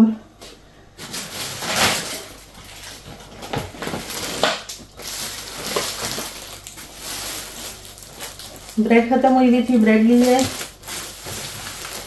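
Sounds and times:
plastic bags rustling: 0:00.9 - 0:12.0.

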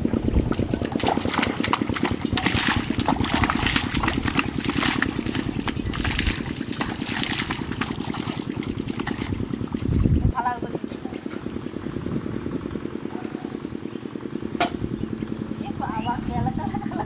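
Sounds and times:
water churning and splashing: 0:00.0 - 0:11.4
small motor running: 0:00.0 - 0:17.0.

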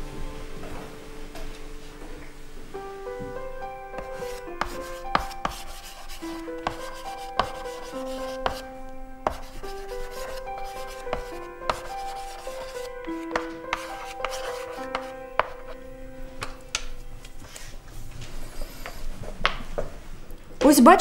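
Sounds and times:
soft background music: 0:00.0 - 0:21.0
chalk tapping: 0:03.9 - 0:15.8
chalk scratching on blackboard: 0:04.0 - 0:15.8.

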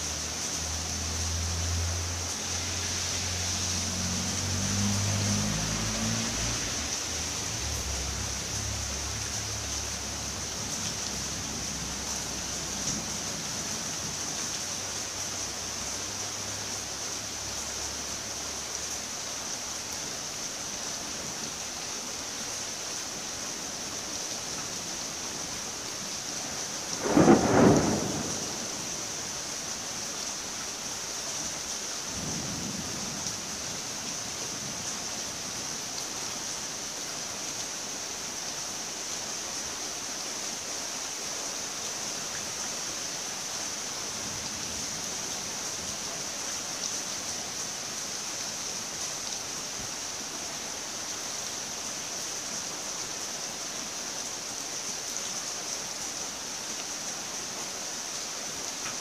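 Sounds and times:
rain hissing: 0:00.0 - 0:59.0
loud thunderclap: 0:27.0 - 0:28.8
low rumble of thunder: 0:27.0 - 0:29.1.

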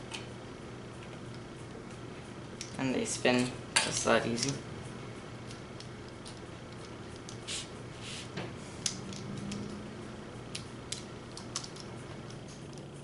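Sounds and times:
plastic parts clicking: 0:10.5 - 0:12.9.

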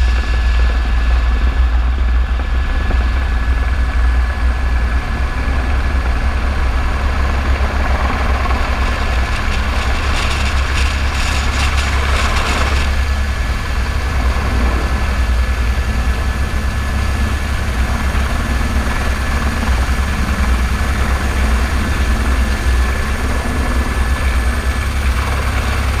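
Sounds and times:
helicopter rotor beat: 0:00.0 - 0:26.0
high turbine whine: 0:00.0 - 0:26.0.

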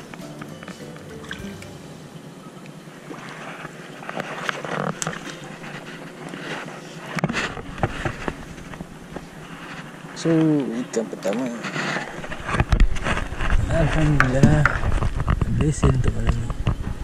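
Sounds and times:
water splashing and sloshing: 0:00.0 - 0:10.6.

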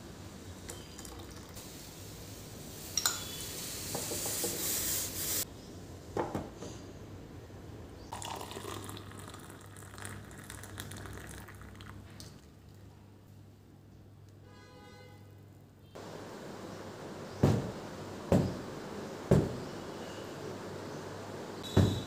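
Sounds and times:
milk pouring and splashing: 0:08.2 - 0:12.5.

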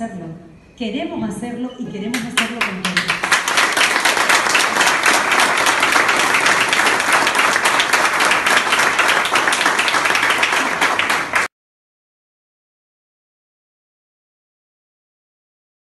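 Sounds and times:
audience applauding: 0:02.2 - 0:11.5.

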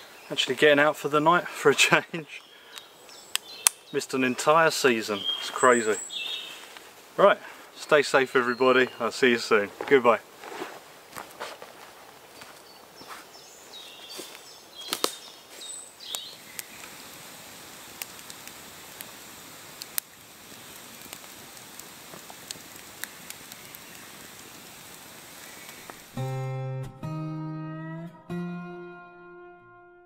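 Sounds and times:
birds chirping: 0:00.0 - 0:10.2, 0:12.3 - 0:17.0, 0:23.0 - 0:26.0
steady outdoor hiss: 0:00.0 - 0:26.8
sharp snaps and cracks: 0:02.4 - 0:07.0, 0:14.2 - 0:26.2
acoustic guitar music: 0:26.1 - 0:30.0.

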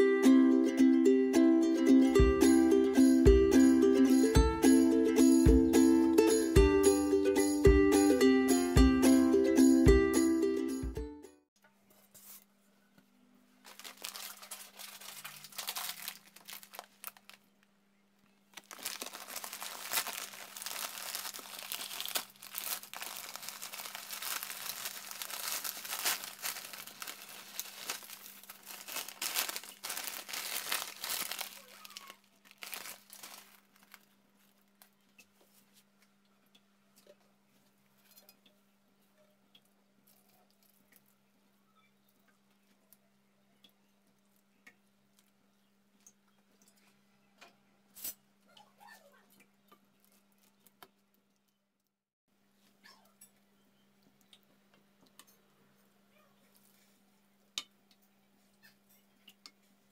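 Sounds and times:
plastic packet crinkling and tearing: 0:13.6 - 0:17.6, 0:18.5 - 0:34.7.

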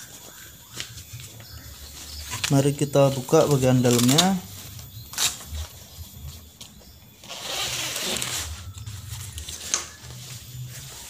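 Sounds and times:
nylon jacket rustling: 0:07.2 - 0:11.0.

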